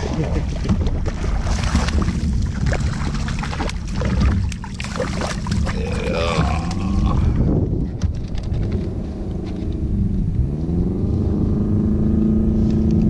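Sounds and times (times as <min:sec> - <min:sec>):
water splashing and sloshing: 0:00.0 - 0:09.6
wind rumble on microphone: 0:00.0 - 0:13.0.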